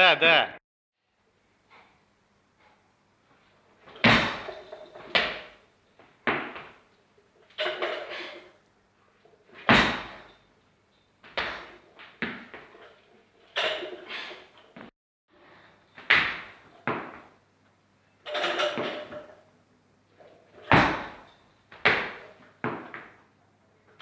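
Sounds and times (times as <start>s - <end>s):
barbell plates rattling: 3.9s - 5.5s, 7.5s - 8.4s, 12.7s - 14.3s
feet thumping on platform: 3.9s - 5.5s, 6.2s - 6.8s, 9.6s - 10.3s, 16.0s - 17.3s, 20.7s - 23.2s.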